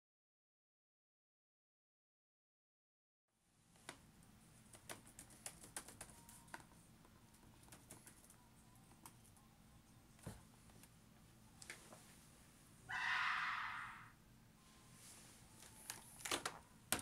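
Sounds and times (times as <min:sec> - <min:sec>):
laptop keyboard typing: 0:04.6 - 0:09.4.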